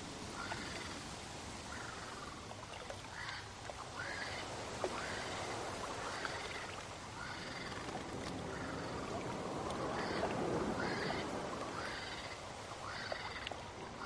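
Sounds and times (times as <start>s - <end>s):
pond water sloshing and trickling: 0.0s - 14.0s
flamingos honking: 8.5s - 13.4s.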